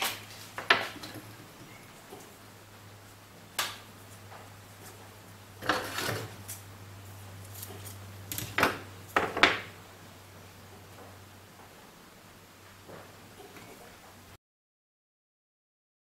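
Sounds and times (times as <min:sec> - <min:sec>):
tape scraping rustle: 0:00.0 - 0:01.6, 0:04.0 - 0:06.7, 0:07.3 - 0:08.8.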